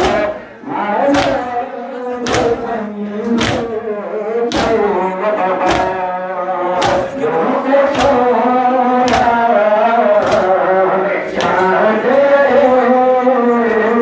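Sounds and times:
men chanting a lament: 0.0s - 14.0s
collective chest-beating: 4.5s - 6.1s, 6.7s - 11.8s.

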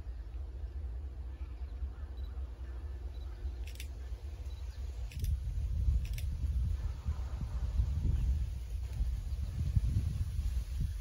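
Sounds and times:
wind buffeting microphone: 3.6s - 11.0s.

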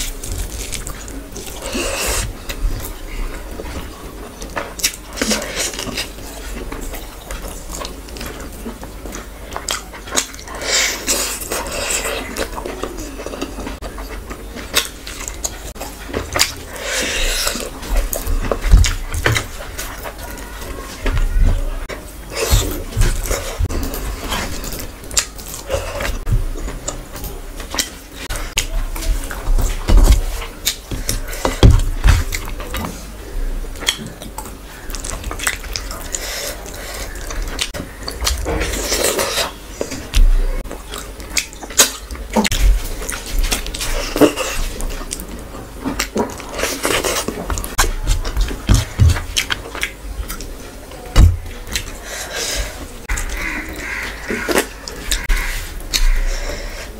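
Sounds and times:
wet chewing: 0.0s - 33.0s, 33.7s - 56.9s
wet chewing and lip smacking: 33.8s - 48.6s.

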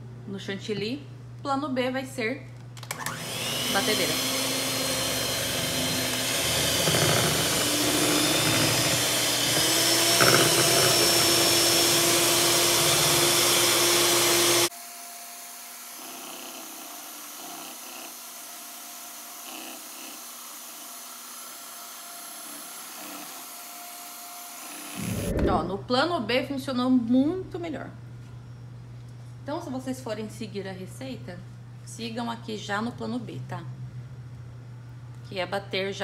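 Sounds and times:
electric hand mixer whipping: 2.9s - 25.5s.

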